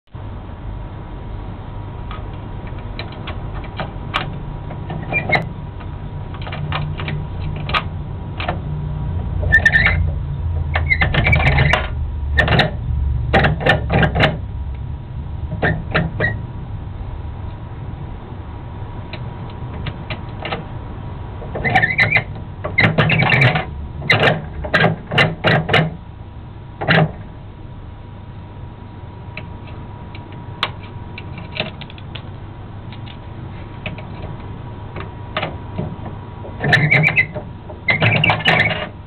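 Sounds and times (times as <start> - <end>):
low rumble: 0.1 - 21.6.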